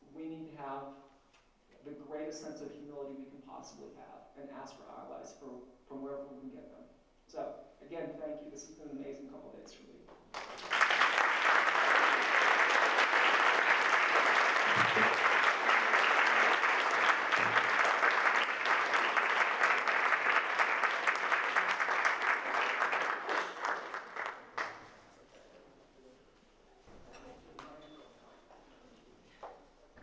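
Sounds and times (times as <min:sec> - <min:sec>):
audience applauding: 0:10.3 - 0:25.0.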